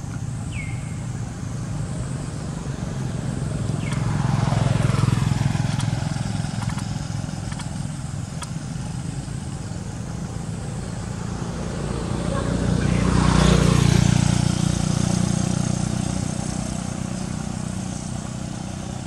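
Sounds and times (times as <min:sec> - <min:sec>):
vehicle engine passing by: 0:00.0 - 0:19.0.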